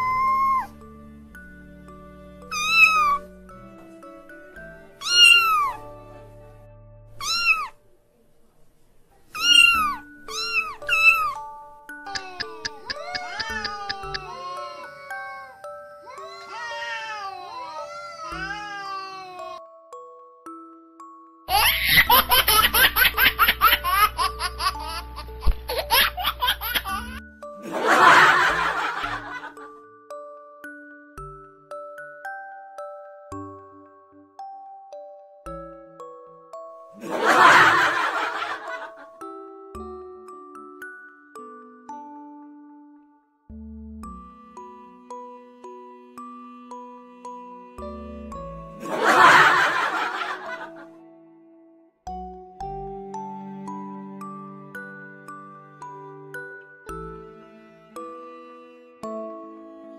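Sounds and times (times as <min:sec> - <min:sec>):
light tinkling music: 0:00.0 - 0:08.2, 0:09.1 - 0:59.9
kitten meowing: 0:02.5 - 0:03.2, 0:05.0 - 0:05.8, 0:07.2 - 0:07.8, 0:09.4 - 0:11.4, 0:12.1 - 0:14.4
person laughing: 0:12.1 - 0:14.4.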